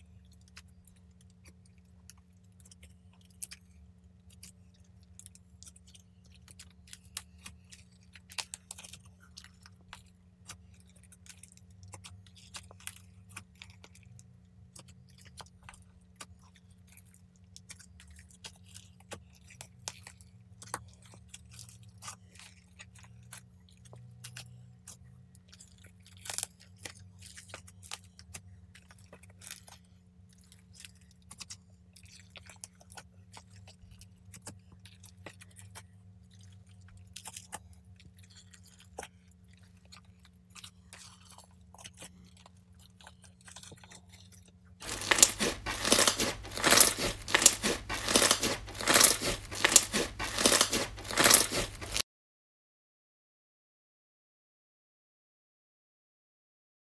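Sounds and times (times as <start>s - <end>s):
slime sticky clicks and crackles: 40.2s - 52.0s.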